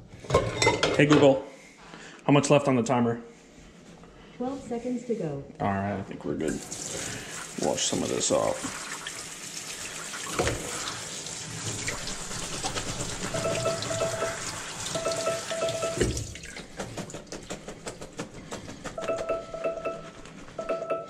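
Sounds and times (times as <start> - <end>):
sink sprayer running: 6.6 - 16.3
timer alarm beeping: 13.3 - 16.2, 19.0 - 21.0.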